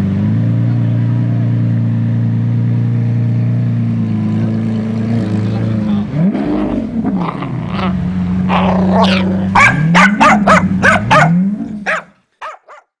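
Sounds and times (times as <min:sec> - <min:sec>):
dog yipping: 0:09.1 - 0:12.9
dog barking: 0:09.1 - 0:13.0.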